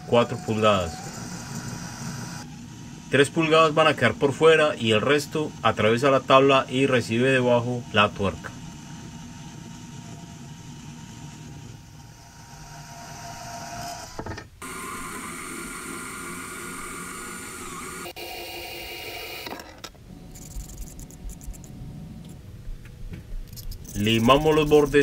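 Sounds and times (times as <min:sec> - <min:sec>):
motor whirring: 0:00.0 - 0:03.1, 0:08.0 - 0:21.7.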